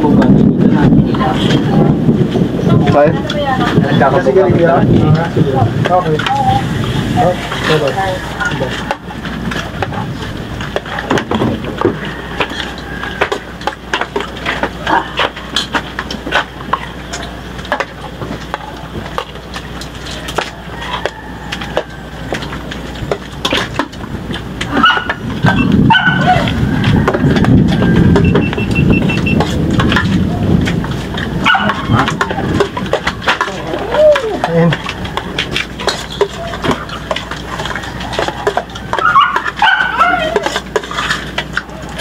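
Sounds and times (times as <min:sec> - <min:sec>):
busy background din: 0:00.0 - 0:42.0
dog barking and yelping: 0:24.7 - 0:27.0, 0:31.4 - 0:32.1, 0:38.0 - 0:40.6.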